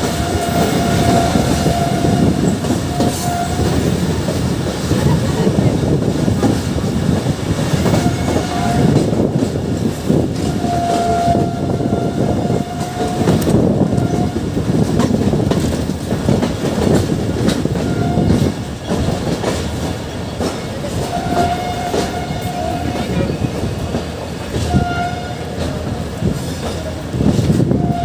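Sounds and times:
locomotive horn: 0.0s - 4.0s, 7.8s - 9.2s, 10.4s - 14.6s, 17.8s - 18.6s, 21.0s - 23.4s, 24.6s - 25.8s, 27.7s - 28.0s
train rumbling: 0.0s - 28.0s
wind: 0.0s - 28.0s
wheels clacking over rail joints: 12.5s - 27.7s.

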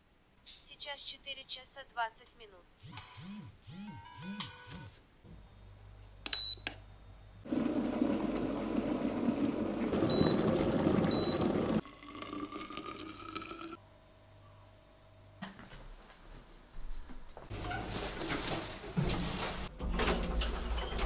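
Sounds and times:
water filling a container: 7.5s - 13.8s.

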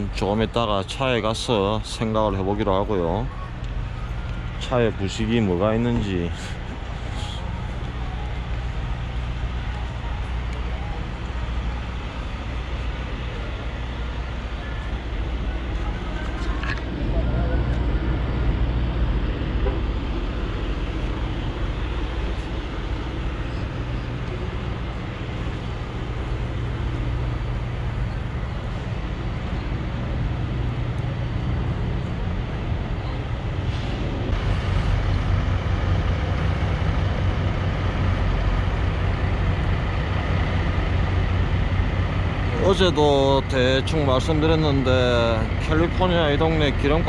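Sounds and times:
idling truck engines: 0.0s - 47.0s
passing traffic: 0.0s - 47.0s.

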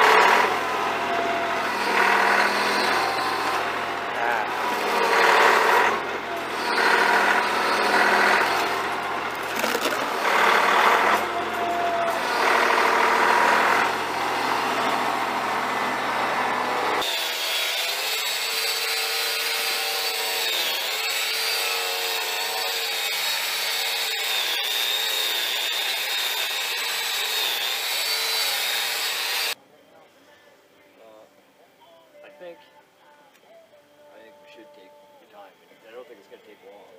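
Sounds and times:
tractor engine surging: 0.0s - 17.1s
small motor whining: 0.0s - 29.6s.

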